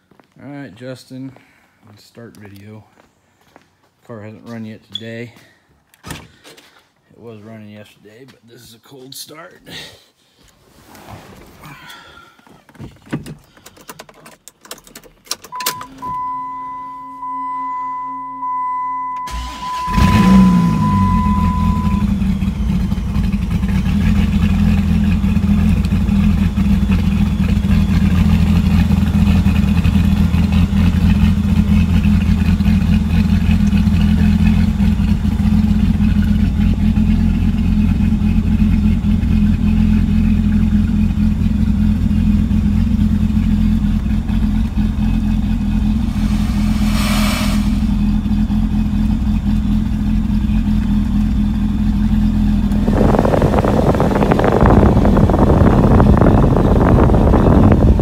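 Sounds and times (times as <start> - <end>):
steady electronic tone: 15.6 - 22.2, 45.5 - 48.6
car engine idling loudly: 20.0 - 58.0.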